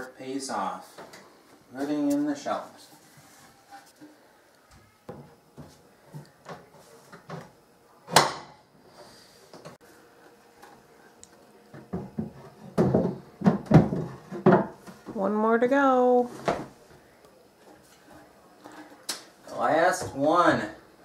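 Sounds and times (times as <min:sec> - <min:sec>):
wooden shelf boards knocking: 0:11.9 - 0:14.8.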